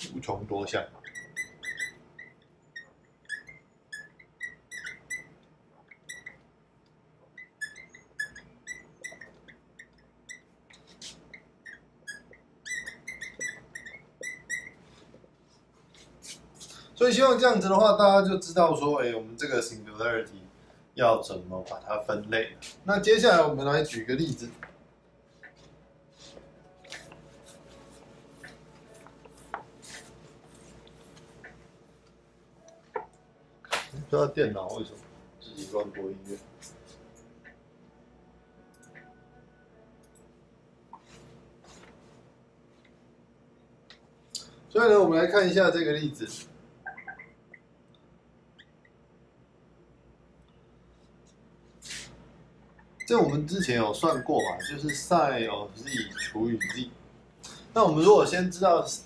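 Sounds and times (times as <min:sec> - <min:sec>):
marker squeaking on whiteboard: 0:00.0 - 0:06.6, 0:07.2 - 0:17.6, 0:22.5 - 0:24.7, 0:25.3 - 0:31.6, 0:32.6 - 0:33.8, 0:35.5 - 0:37.6, 0:40.9 - 0:42.0, 0:46.3 - 0:47.6, 0:48.6 - 0:49.0, 0:51.8 - 0:57.0
eraser rubbing on whiteboard: 0:27.3 - 0:30.8, 0:51.8 - 0:52.2.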